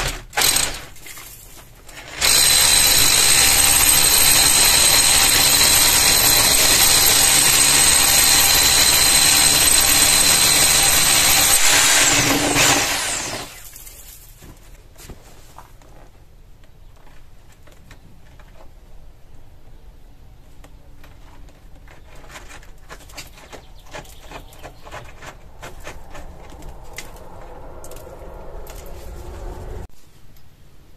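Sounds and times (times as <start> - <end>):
hammer drill boring into brick: 0.3 - 1.0, 2.0 - 13.6.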